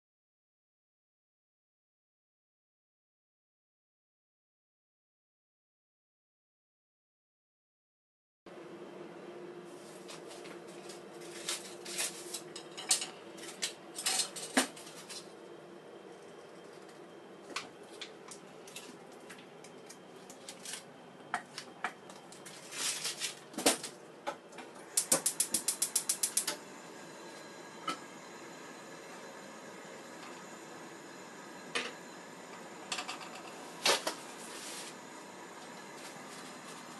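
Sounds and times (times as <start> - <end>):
gas igniter clicking rapidly: 25.0 - 26.6.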